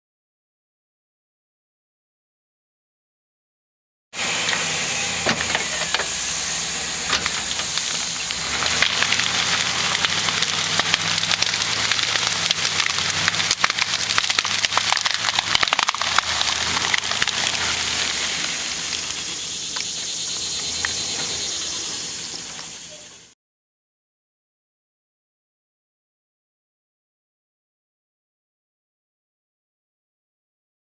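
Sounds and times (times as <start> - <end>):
pickup engine under load: 4.2 - 23.3
branches and brush snapping: 7.2 - 21.3.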